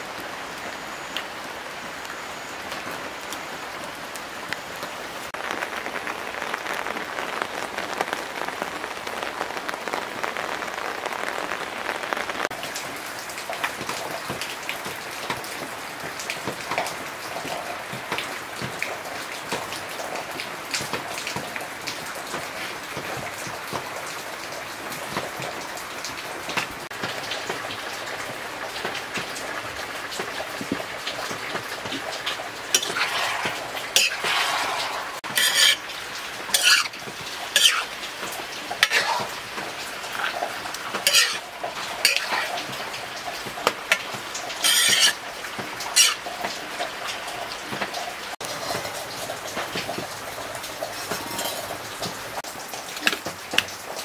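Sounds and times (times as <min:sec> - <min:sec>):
meat frying crackling hiss: 0:00.6 - 0:54.0
metal spoon scraping pan: 0:32.7 - 0:35.9, 0:36.5 - 0:37.0, 0:37.6 - 0:37.9, 0:38.8 - 0:39.4, 0:40.2 - 0:42.7, 0:44.6 - 0:45.2, 0:45.9 - 0:46.2.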